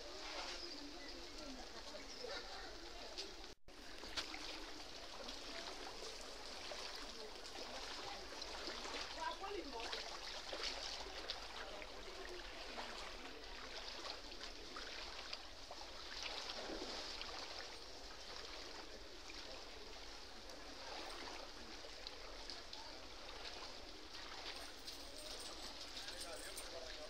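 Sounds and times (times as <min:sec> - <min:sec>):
legs wading through floodwater: 0:00.0 - 0:27.0.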